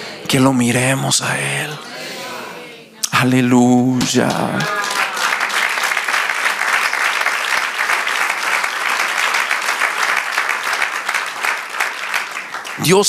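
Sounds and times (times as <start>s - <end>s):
congregation applauding: 4.0s - 13.0s.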